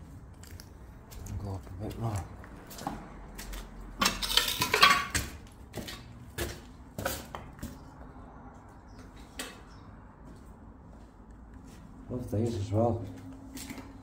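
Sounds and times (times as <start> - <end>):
footsteps crunching on grit: 0.4 - 3.9, 10.2 - 14.0.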